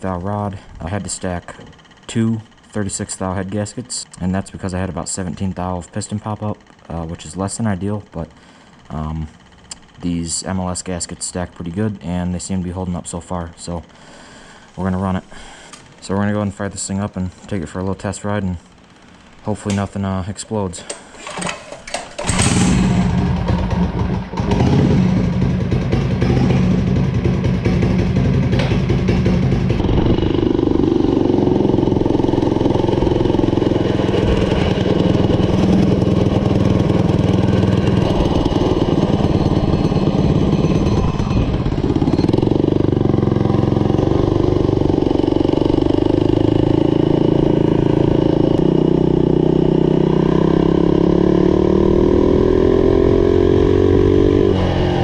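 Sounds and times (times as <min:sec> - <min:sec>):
mini bike engine running: 0:20.8 - 0:55.0.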